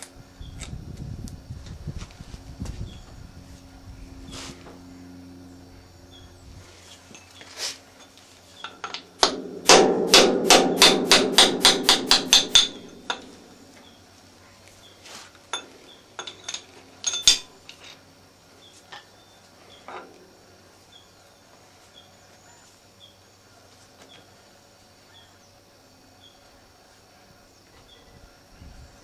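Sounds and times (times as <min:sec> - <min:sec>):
metallic clinks of tooling: 0:15.5 - 0:18.0.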